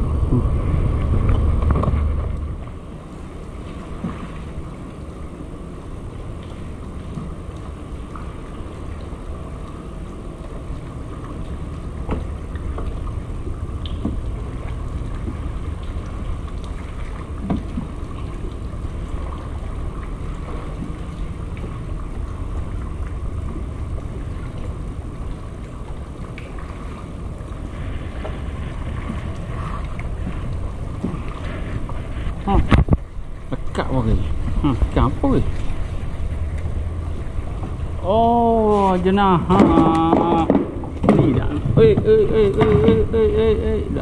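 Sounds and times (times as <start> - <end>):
wind noise on microphone: 31.6 - 33.2.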